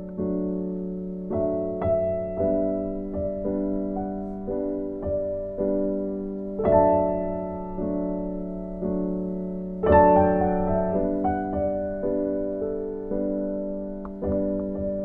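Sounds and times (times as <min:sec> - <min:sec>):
gentle keyboard piece: 0:00.0 - 0:15.0.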